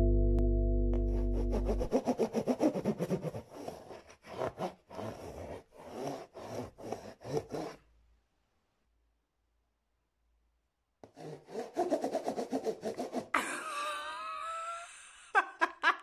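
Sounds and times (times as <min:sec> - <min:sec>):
scissors scraping cardboard: 0:01.8 - 0:07.9, 0:11.0 - 0:13.3.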